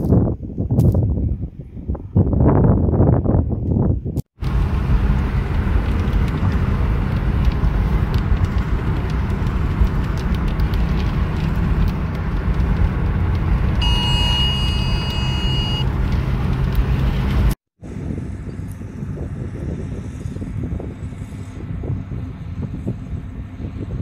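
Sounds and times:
road and tyre noise in car: 0:00.0 - 0:24.0
steady electronic beep: 0:13.8 - 0:15.9.

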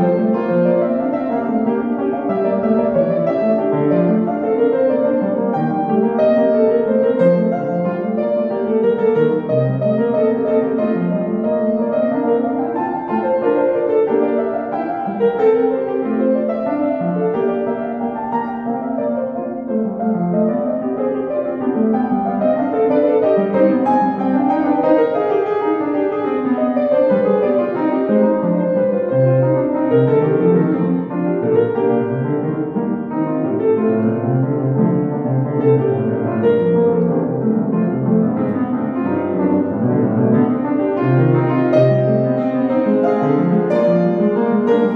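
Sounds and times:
solo piano classical piece: 0:00.0 - 0:44.9.

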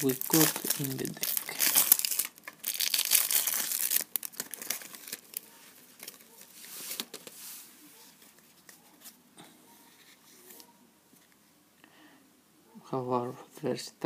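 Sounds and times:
cellophane packaging crinkling: 0:00.0 - 0:07.3.

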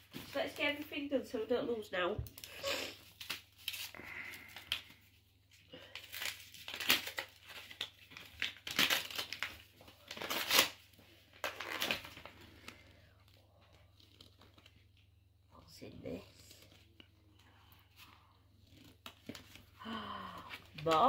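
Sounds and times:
paper crinkling and rustling: 0:02.3 - 0:15.1.

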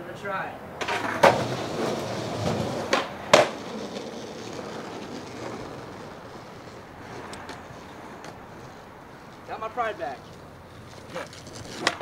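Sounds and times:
skateboard wheels rolling: 0:00.7 - 0:12.0
skateboard landing clack: 0:00.8 - 0:06.1, 0:11.0 - 0:12.0
skateboard tail snapping: 0:00.8 - 0:09.4, 0:10.3 - 0:12.0.

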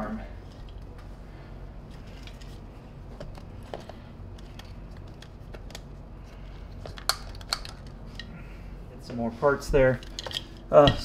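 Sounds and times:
steady low hum: 0:00.0 - 0:11.0
plastic parts clicking: 0:06.8 - 0:08.3.

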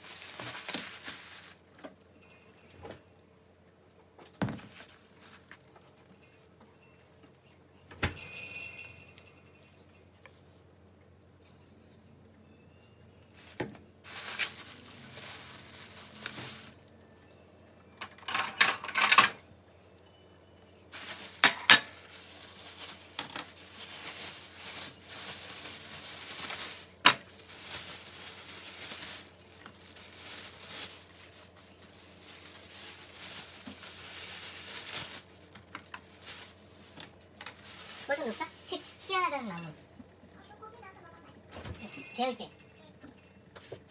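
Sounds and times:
plastic bag rustling: 0:00.0 - 0:03.2, 0:04.3 - 0:06.6, 0:13.2 - 0:17.4, 0:20.8 - 0:40.0.

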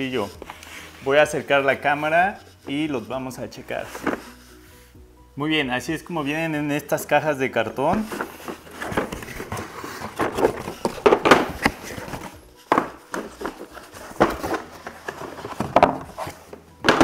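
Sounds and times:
cardboard rustling and scraping: 0:00.0 - 0:04.8, 0:07.6 - 0:17.0
plastic case knocking in box: 0:10.1 - 0:11.8, 0:12.7 - 0:13.5, 0:16.8 - 0:17.0.

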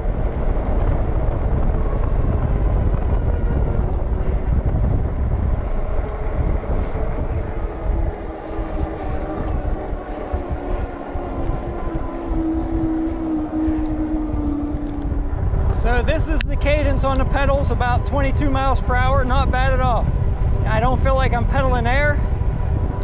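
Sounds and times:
fat tires rolling on pavement: 0:00.0 - 0:23.0
hub motor whine: 0:00.0 - 0:23.0
wind rushing over microphone: 0:00.0 - 0:23.0.

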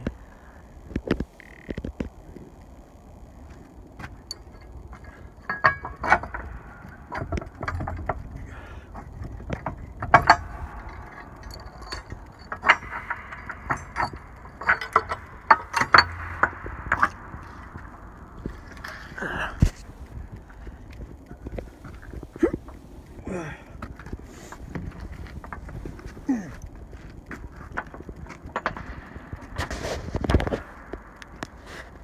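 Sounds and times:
scraping: 0:04.1 - 0:32.0
mechanical clicks and knocks: 0:04.2 - 0:23.2.

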